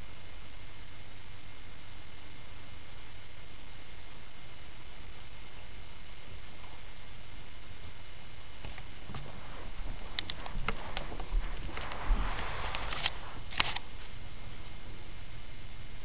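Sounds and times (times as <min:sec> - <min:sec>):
steady low hum: 0:00.0 - 0:16.0
close scuffling and rustling: 0:08.7 - 0:14.8.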